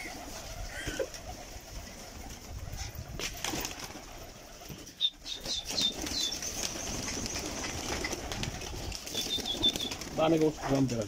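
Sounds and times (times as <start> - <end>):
pigeon wings flapping: 0.0 - 11.0
small bird chirping: 4.9 - 7.8, 9.1 - 10.0.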